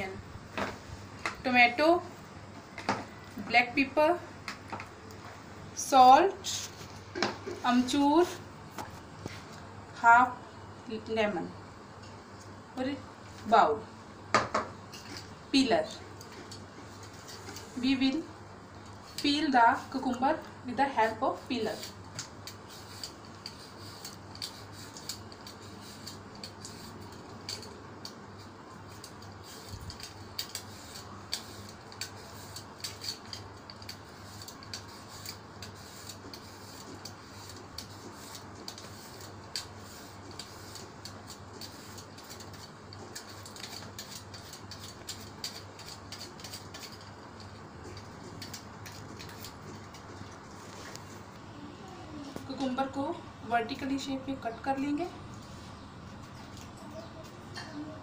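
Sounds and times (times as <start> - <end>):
peeler scraping cucumber skin: 21.0 - 50.4.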